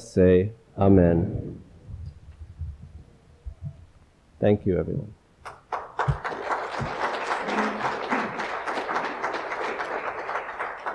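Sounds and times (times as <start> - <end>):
congregation applauding: 5.4 - 10.9.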